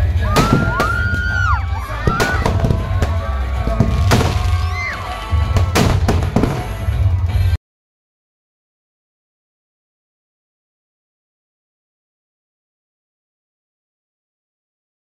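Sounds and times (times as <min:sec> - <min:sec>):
firework bangs: 0:00.0 - 0:07.3
crowd noise: 0:00.0 - 0:07.6
loud music with heavy bass: 0:00.0 - 0:07.6
firework whistling: 0:00.3 - 0:07.0.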